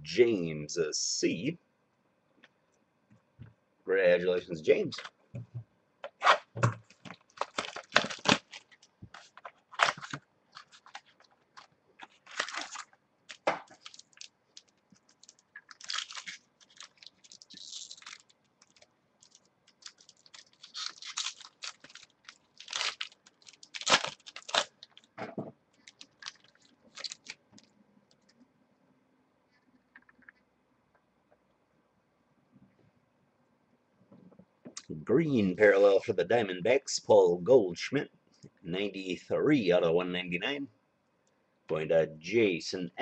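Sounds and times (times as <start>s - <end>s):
cards being handled: 6.1s - 24.7s
foil wrapper tearing and crinkling: 7.0s - 25.1s, 25.8s - 27.4s.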